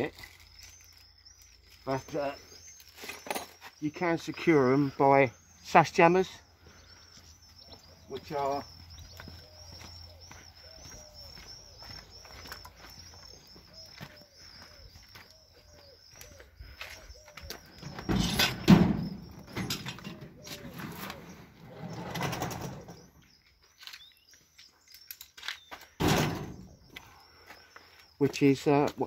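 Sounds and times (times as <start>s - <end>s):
bird calling: 0.0s - 29.0s
loud thuds: 26.0s - 26.7s.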